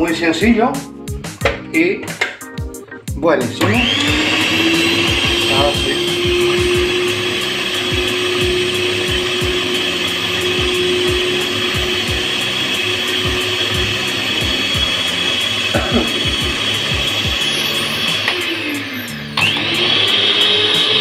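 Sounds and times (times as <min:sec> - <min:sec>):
electric stand mixer running: 0:03.6 - 0:21.0.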